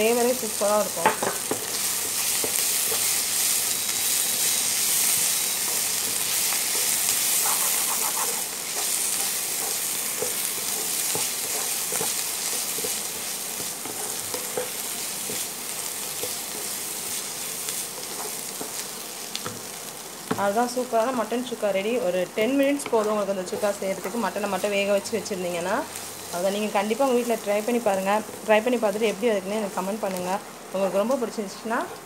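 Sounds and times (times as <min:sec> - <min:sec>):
meat sizzling in a pan: 0:00.0 - 0:32.0
spatula scraping a pan: 0:06.2 - 0:18.8.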